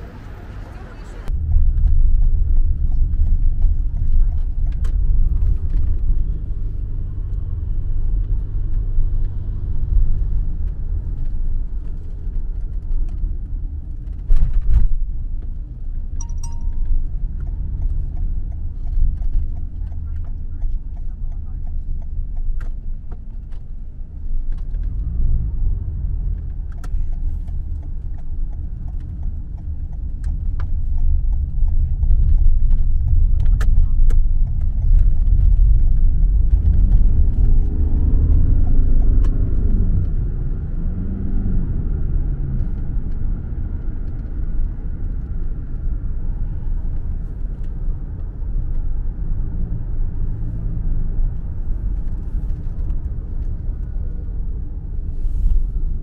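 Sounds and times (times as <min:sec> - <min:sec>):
car engine and road rumble: 0:00.0 - 0:56.0.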